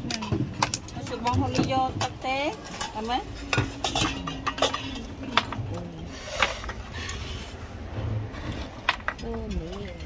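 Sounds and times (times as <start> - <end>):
plates and cutlery clinking: 2.7 - 5.8.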